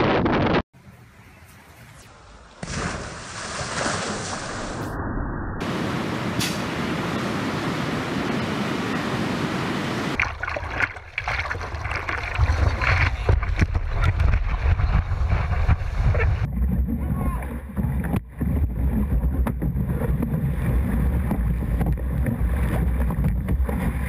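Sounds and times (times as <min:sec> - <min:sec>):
water splashing: 0:02.6 - 0:04.8, 0:07.0 - 0:24.0
ocean surf breaking: 0:05.6 - 0:10.2.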